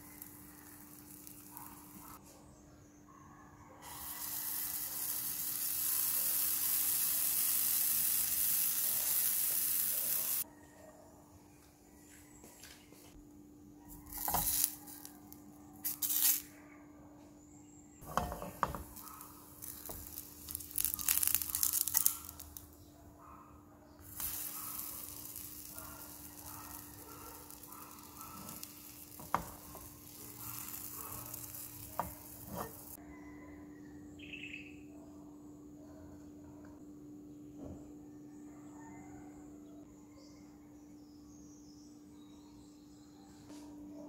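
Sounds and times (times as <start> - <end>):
pancake batter sizzling: 0.0 - 2.2, 3.8 - 10.4, 18.0 - 22.7, 24.0 - 33.0
spatula scraping and tapping: 14.1 - 14.7, 18.0 - 22.5, 27.4 - 33.0.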